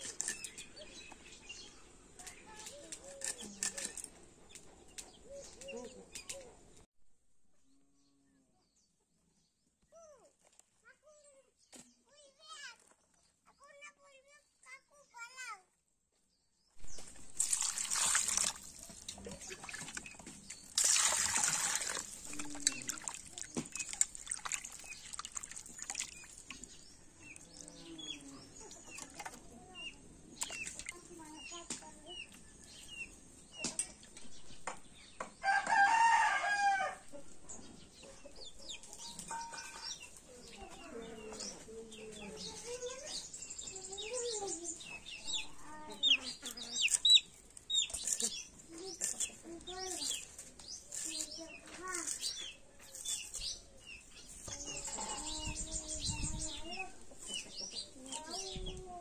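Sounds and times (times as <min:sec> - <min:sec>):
water splashing in plastic bucket: 0:17.0 - 0:26.8
rooster crowing: 0:35.4 - 0:37.1.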